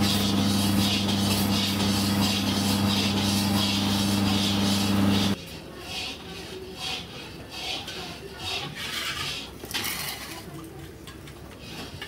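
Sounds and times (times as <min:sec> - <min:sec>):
motor humming: 0:00.0 - 0:05.4.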